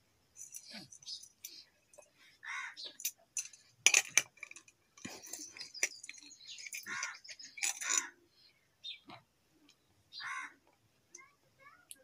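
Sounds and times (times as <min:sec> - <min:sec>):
steel bowl clinking and scraping: 0:03.0 - 0:08.1.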